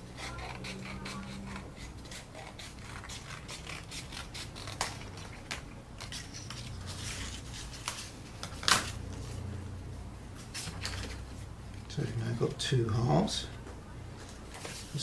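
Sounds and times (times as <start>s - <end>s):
pencil scratching on card: 0.2s - 4.8s.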